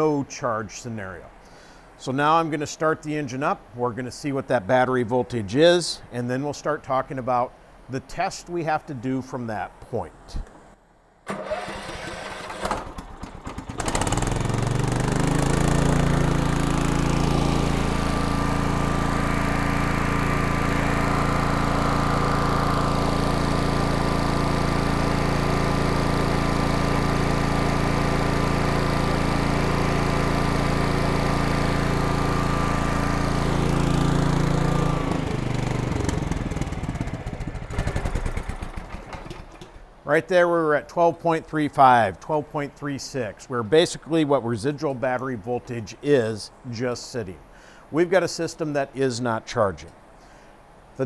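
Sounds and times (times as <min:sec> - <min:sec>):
small engine running: 0:11.3 - 0:39.8.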